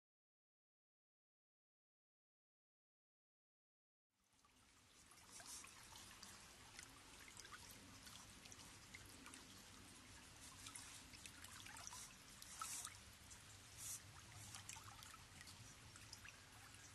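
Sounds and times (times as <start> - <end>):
trickle of running water: 4.2 - 16.9.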